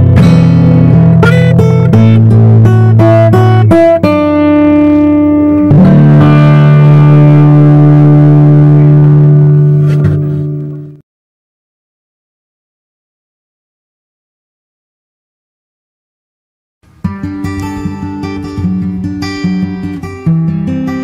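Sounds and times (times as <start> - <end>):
background music plucked notes: 0.0 - 11.0, 17.0 - 21.0
held chords: 0.0 - 11.0, 16.8 - 21.0.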